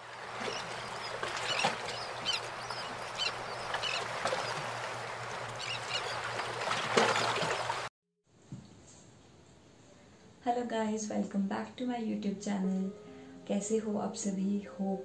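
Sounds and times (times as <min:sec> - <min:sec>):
birds calling: 0:00.0 - 0:07.9.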